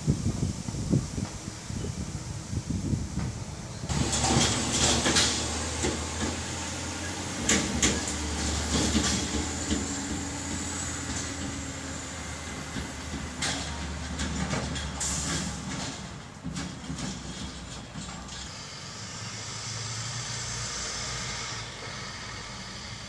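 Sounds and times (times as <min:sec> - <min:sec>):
diesel truck engine: 0:00.0 - 0:23.0
clanks and rattles: 0:03.2 - 0:18.5.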